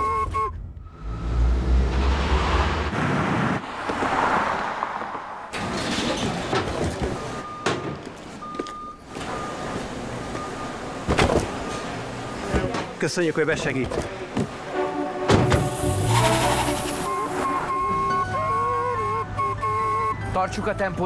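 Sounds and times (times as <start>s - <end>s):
short high beeps: 16.1s - 20.2s.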